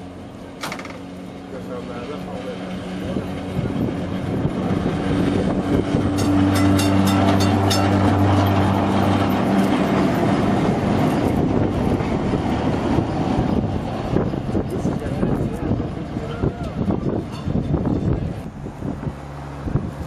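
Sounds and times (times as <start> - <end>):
electric tram hum: 0.0 - 20.0
tram wheels rumbling on rails: 1.8 - 20.0.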